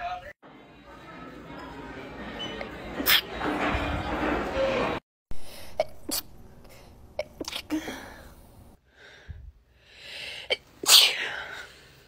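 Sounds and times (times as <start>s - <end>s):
woman sneezing: 10.8s - 11.5s.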